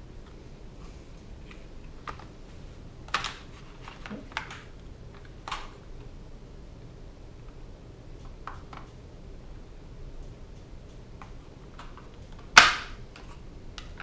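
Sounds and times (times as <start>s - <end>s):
loud sharp plastic snap: 11.8s - 14.0s.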